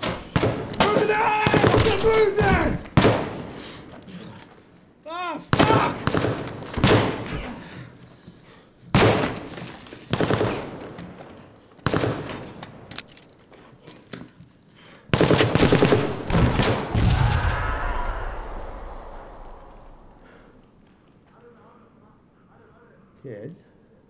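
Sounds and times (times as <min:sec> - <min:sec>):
rifle shots: 0:00.0 - 0:03.5, 0:05.5 - 0:07.3, 0:09.0 - 0:11.2, 0:11.8 - 0:12.8, 0:15.1 - 0:17.6.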